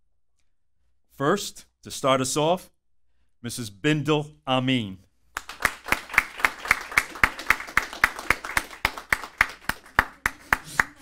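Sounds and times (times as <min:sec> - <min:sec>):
sharp claps: 0:05.3 - 0:11.0
audience applauding: 0:05.4 - 0:11.0.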